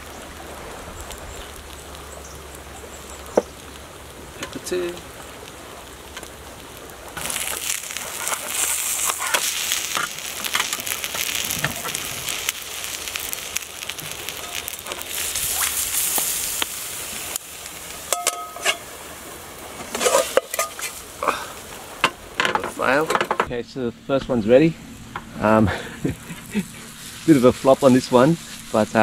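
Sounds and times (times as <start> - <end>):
omelette sizzling in a frying pan: 0.0 - 23.0, 24.8 - 29.0
pan knocks and clinks: 18.1 - 18.8.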